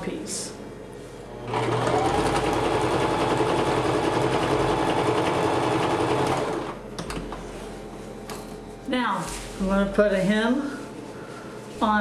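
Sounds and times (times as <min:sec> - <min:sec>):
sewing machine running: 0:01.4 - 0:06.8.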